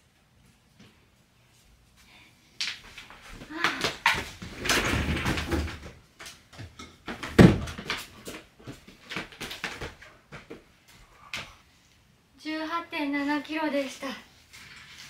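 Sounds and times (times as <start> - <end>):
puppy paws tapping on floor: 2.6 - 10.7.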